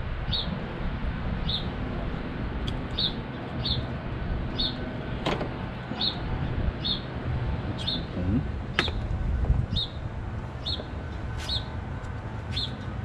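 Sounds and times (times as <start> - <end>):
low background rumble: 0.0 - 13.0
small bird chirping: 1.4 - 1.7, 2.9 - 3.9, 4.6 - 4.8, 6.0 - 7.1, 7.8 - 8.2, 9.7 - 10.0, 10.6 - 11.7, 12.5 - 12.9.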